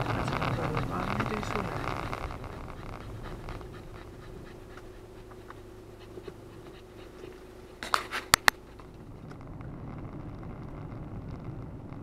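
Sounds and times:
car engine idling: 0:00.0 - 0:12.0
sharp clicks and knocks: 0:07.8 - 0:12.0.

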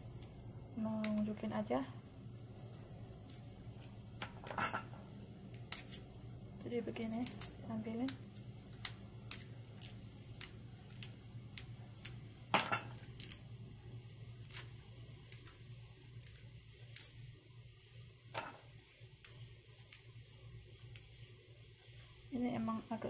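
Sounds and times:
low steady hum: 0:00.0 - 0:23.0
bulb scales snapping and crackling: 0:07.1 - 0:13.4, 0:14.4 - 0:17.2.

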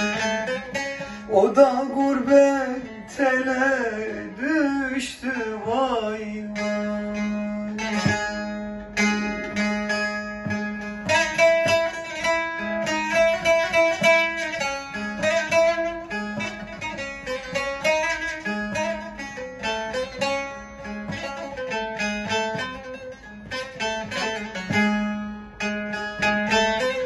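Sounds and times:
plucked lute melody: 0:00.0 - 0:27.0.

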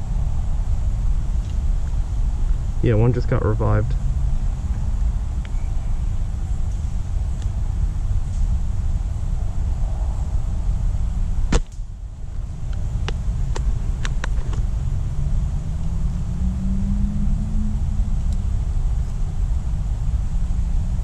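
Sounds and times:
steady low rumble: 0:00.0 - 0:21.0
airsoft rifle shot: 0:11.5 - 0:11.8.

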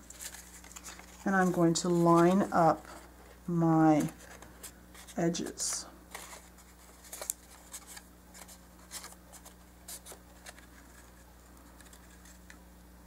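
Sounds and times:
paper rustling: 0:00.0 - 0:12.6
faint steady hum: 0:00.0 - 0:13.0.

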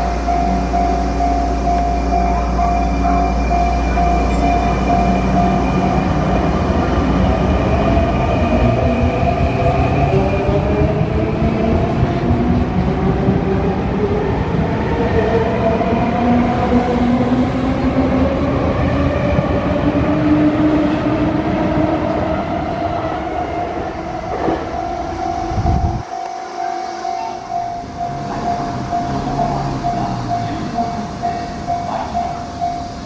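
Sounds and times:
train traction motors whining: 0:00.0 - 0:09.2, 0:24.3 - 0:33.0
wheels rumbling on rail: 0:00.0 - 0:33.0.

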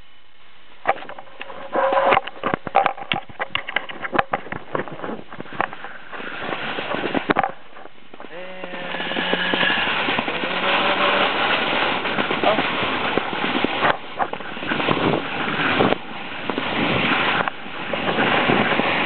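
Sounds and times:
low hum: 0:00.0 - 0:18.1
wind and snow hiss: 0:00.8 - 0:19.0.

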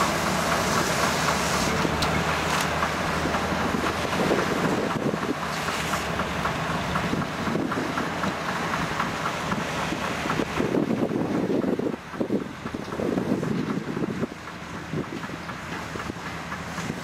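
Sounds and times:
machinery clicking: 0:00.0 - 0:17.0
tractor running: 0:00.0 - 0:17.0
wind buffeting microphone: 0:03.2 - 0:05.4, 0:06.9 - 0:17.0.

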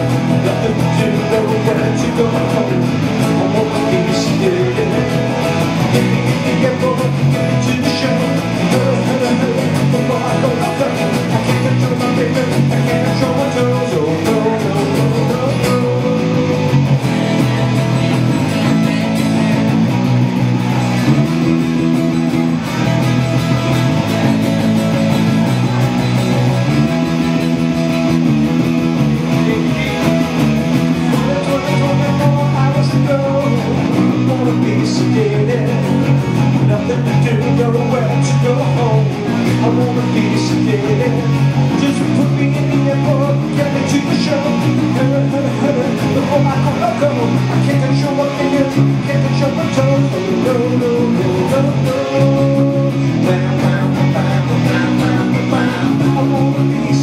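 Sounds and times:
acoustic guitar: 0:00.0 - 0:57.0
electric bass: 0:00.0 - 0:57.0
man singing: 0:00.0 - 0:57.0.

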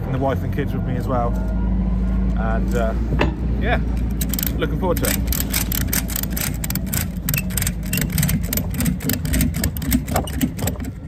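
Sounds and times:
engine humming: 0:00.0 - 0:11.0
ratchet strap clicking: 0:03.9 - 0:11.0.

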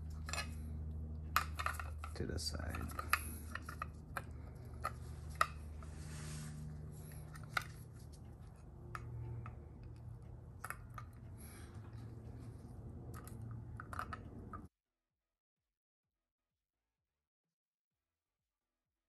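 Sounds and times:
low steady hum: 0:00.0 - 0:14.7
soft rustle: 0:04.3 - 0:08.6.

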